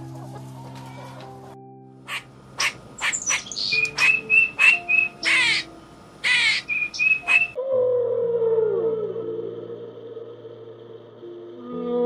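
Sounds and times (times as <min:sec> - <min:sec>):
soft background music: 0:00.0 - 0:12.0
bird chirps and calls: 0:02.1 - 0:07.6.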